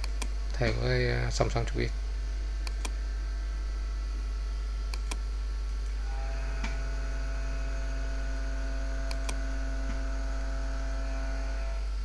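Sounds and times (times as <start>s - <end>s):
electrical mains hum: 0.0s - 12.0s
computer mouse clicks: 2.6s - 3.0s, 4.9s - 5.2s, 9.1s - 10.0s.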